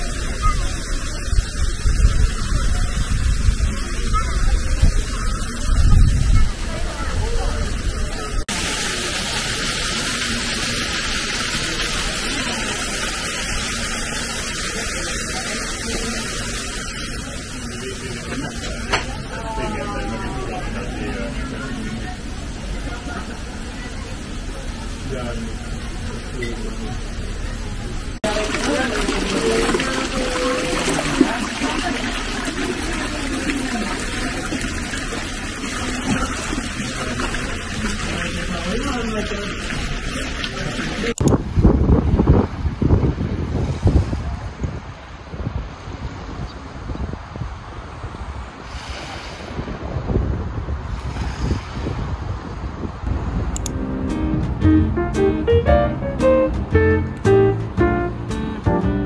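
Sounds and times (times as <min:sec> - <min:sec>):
water pouring into a basin: 0:00.0 - 0:18.8, 0:28.2 - 0:41.2
steady hiss: 0:41.3 - 0:54.4.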